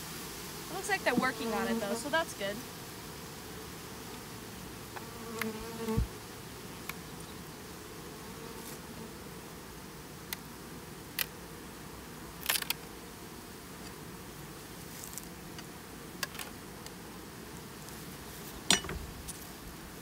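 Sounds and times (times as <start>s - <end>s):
bees buzzing: 0.0s - 20.0s
clicks of hive frames: 4.9s - 6.0s, 10.3s - 10.5s, 11.1s - 11.4s, 12.4s - 12.9s, 15.2s - 17.0s.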